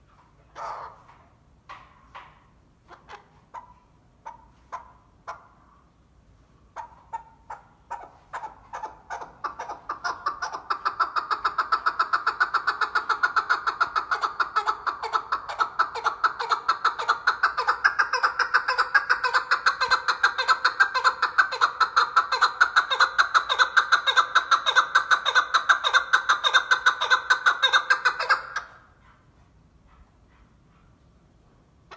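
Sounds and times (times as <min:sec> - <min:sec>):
partridge clucking chatter: 0:06.8 - 0:28.7.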